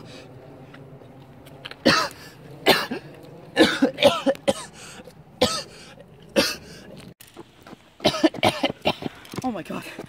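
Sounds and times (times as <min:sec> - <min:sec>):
man coughing: 0:01.8 - 0:04.8, 0:05.4 - 0:05.8, 0:06.4 - 0:06.7, 0:08.0 - 0:09.2.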